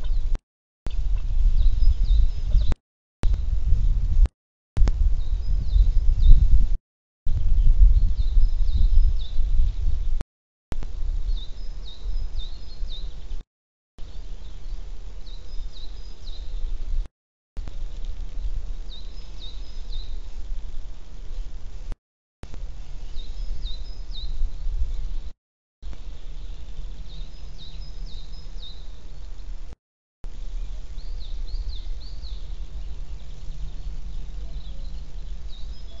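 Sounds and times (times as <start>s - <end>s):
songbird chirping: 0.0s - 3.4s, 11.2s - 13.4s, 14.0s - 17.0s, 17.6s - 20.6s, 22.5s - 25.2s, 25.8s - 29.7s, 30.3s - 36.0s
low wind rumble: 0.0s - 13.4s, 14.0s - 21.9s, 22.5s - 36.0s
steady low rumble: 0.9s - 12.4s.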